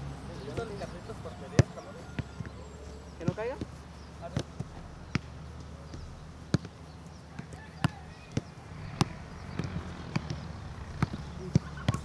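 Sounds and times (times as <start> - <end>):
football kicks thudding: 1.5 - 2.5, 3.2 - 12.0.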